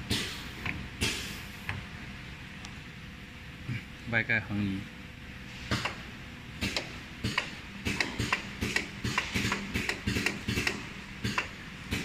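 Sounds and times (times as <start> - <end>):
pneumatic cylinders clacking: 0.0 - 1.8, 5.6 - 12.0.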